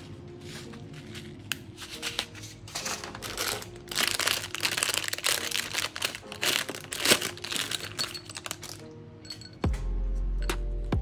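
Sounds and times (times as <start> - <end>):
plastic bag crinkling: 0.4 - 8.9.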